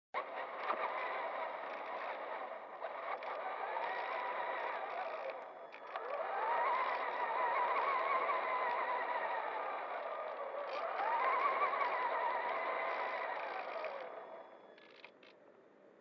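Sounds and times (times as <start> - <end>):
toy truck motor whining: 0.2 - 15.3.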